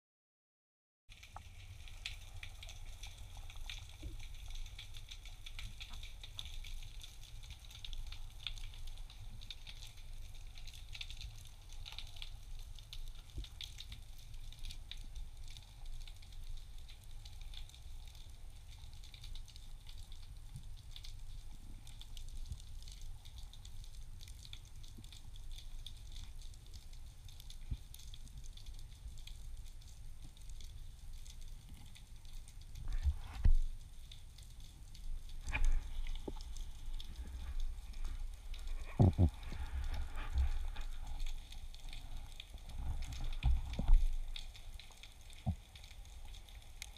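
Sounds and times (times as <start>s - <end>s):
crackle of tiny underwater clicks: 1.1s - 46.9s
low underwater rumble: 32.7s - 46.2s.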